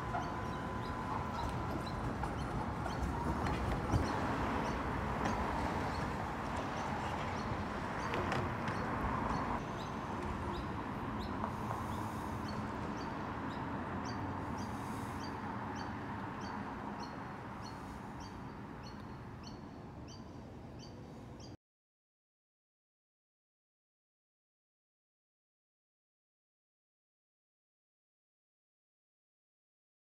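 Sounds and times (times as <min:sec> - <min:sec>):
tram rumbling: 0:00.0 - 0:20.8.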